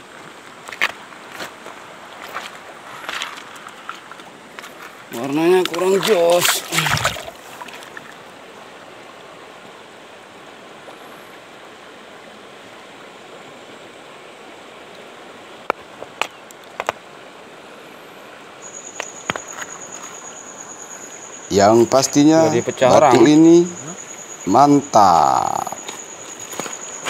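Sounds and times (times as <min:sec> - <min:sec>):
shallow stream water rushing: 0:00.0 - 0:27.0
thin high tone: 0:18.6 - 0:27.0.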